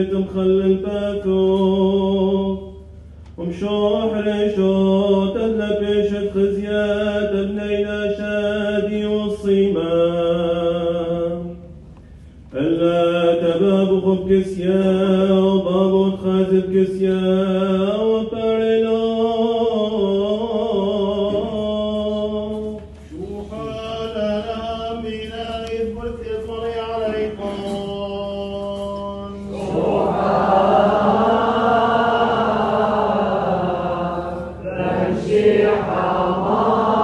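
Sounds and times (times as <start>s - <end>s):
men chanting: 23.2s - 37.0s
group of voices chanting: 29.5s - 37.0s.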